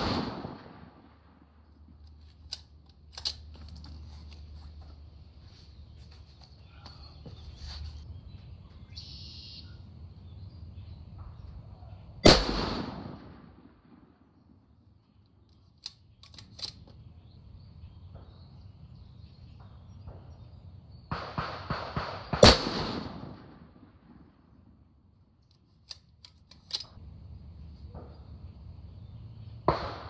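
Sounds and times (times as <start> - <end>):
rifle shots with echo: 0.0 - 1.6, 12.2 - 14.2, 21.1 - 24.5, 29.7 - 30.0.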